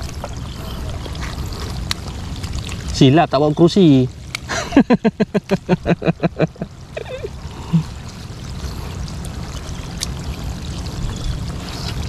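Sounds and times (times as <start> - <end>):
shallow sea water trickling: 0.0 - 12.0
low rumble: 4.2 - 12.0.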